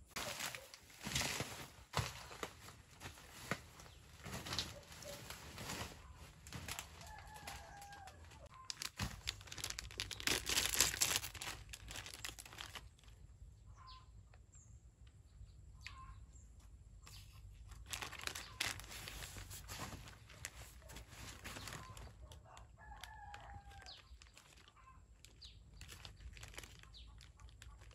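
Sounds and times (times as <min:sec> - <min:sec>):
plastic wrapper crinkling and tearing: 0:00.1 - 0:13.2, 0:17.1 - 0:27.9
faint bird calls: 0:03.4 - 0:09.0, 0:13.6 - 0:14.3, 0:15.7 - 0:25.5.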